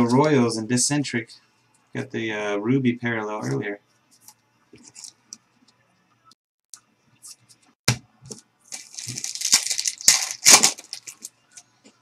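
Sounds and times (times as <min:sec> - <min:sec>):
cards and packaging rustling: 0:08.7 - 0:11.7.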